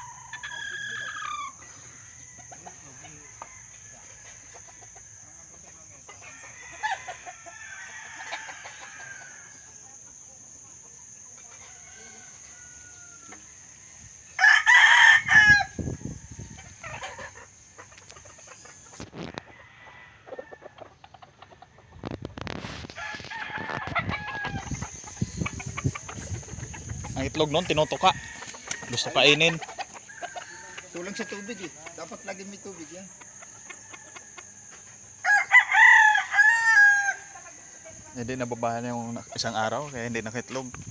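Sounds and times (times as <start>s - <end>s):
rooster crowing: 0.0s - 5.6s, 6.2s - 9.8s, 11.5s - 17.4s, 19.2s - 20.8s, 21.6s - 38.5s
chickens clucking: 15.8s - 35.2s, 37.0s - 40.9s.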